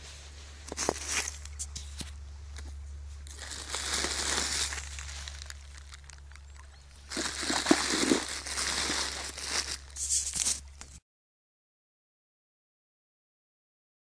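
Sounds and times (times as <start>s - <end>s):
plastic wrapping crackling: 3.3s - 11.0s.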